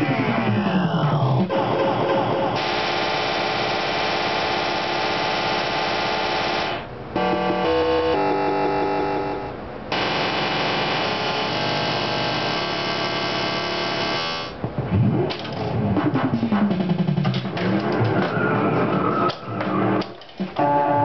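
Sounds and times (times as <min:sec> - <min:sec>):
pinball machine sound effects: 0:00.0 - 0:14.6
pinball machine electronic music: 0:00.0 - 0:21.0.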